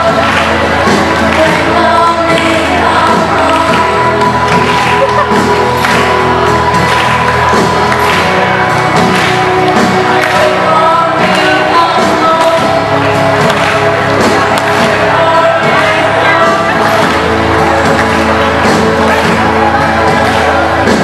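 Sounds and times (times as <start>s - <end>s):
crowd noise: 0.0s - 21.0s
loud music with singing: 0.0s - 21.0s.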